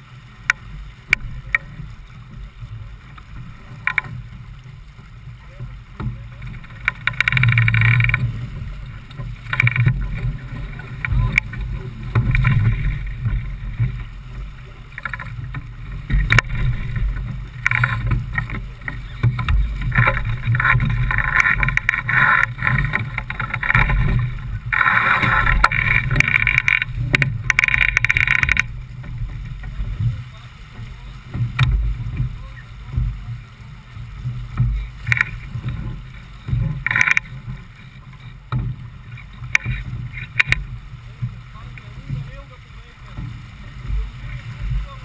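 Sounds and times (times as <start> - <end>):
steady low rumble: 0.0 - 45.0
water splashing along boat hull: 0.0 - 45.0.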